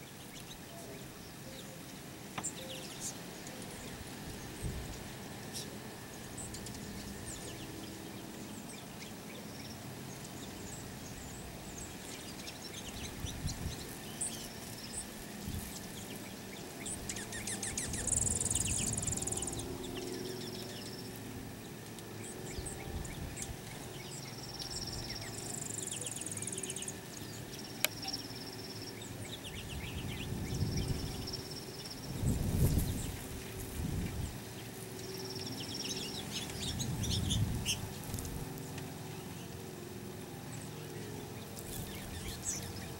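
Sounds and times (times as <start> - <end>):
high buzzy bird trills: 0.0 - 39.7
songbirds chipping and twittering: 0.0 - 42.9.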